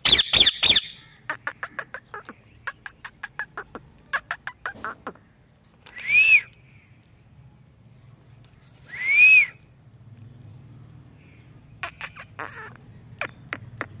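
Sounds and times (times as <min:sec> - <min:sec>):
parakeet whistled calls: 0:00.0 - 0:01.1.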